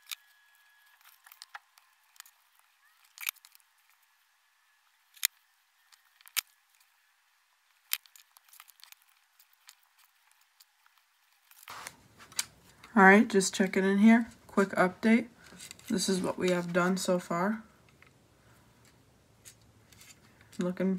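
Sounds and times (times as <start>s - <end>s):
plastic bricks clicking: 3.0s - 3.6s.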